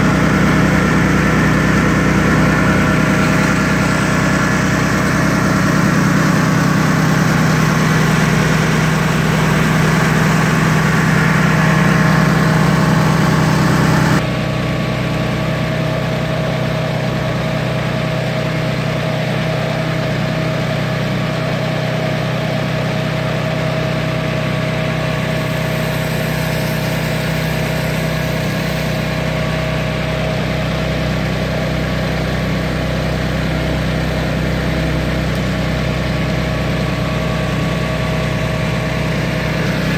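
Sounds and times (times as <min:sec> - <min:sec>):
steady tone: 0:00.0 - 0:14.2
gas engine running: 0:00.0 - 0:39.9.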